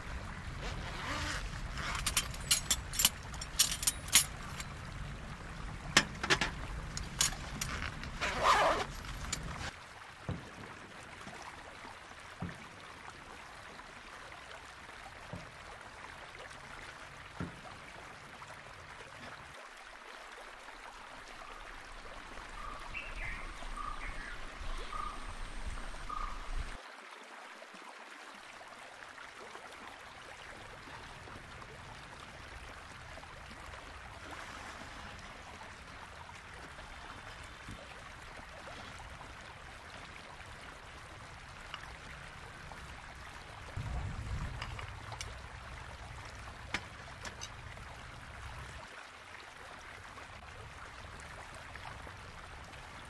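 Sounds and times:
stream rushing: 0.0 - 53.0.

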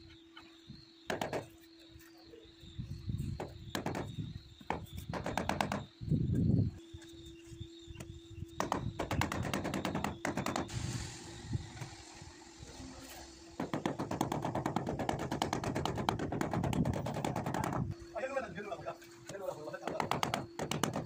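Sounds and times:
scraping hiss: 10.7 - 13.6.

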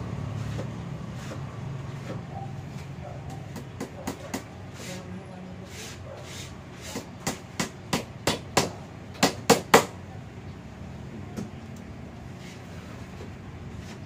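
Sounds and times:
hammer striking nail: 6.9 - 9.9.

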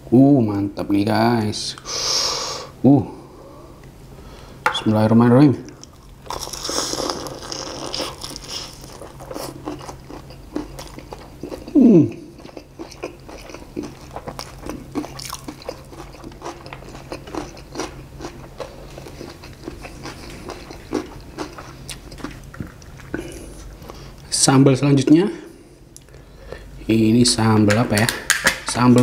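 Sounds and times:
crunchy chewing: 5.7 - 24.2.

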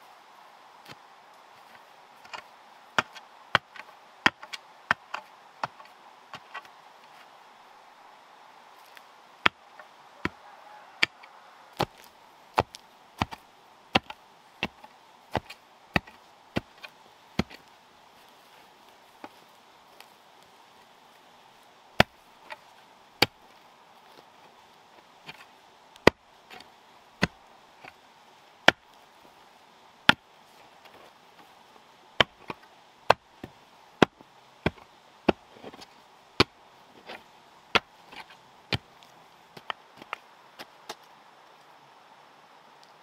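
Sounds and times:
hand tool chopping wood: 2.2 - 5.8, 11.8 - 17.6, 22.0 - 22.6, 37.8 - 38.9.

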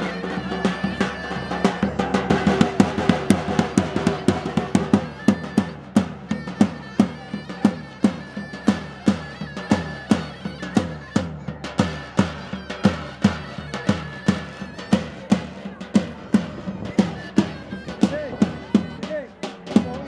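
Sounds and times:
heavy drum beating: 0.0 - 20.0.

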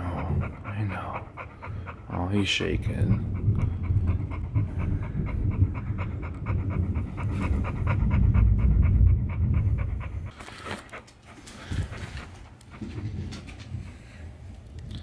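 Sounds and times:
low rumble: 0.0 - 10.4
dog panting: 0.0 - 14.7.

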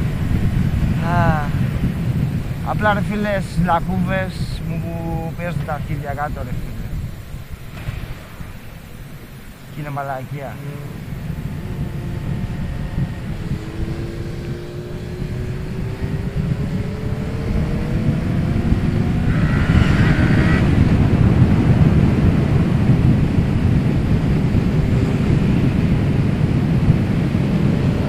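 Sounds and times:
wind rumble on microphone: 0.0 - 28.0
motorcycle engine accelerating: 10.6 - 28.0.

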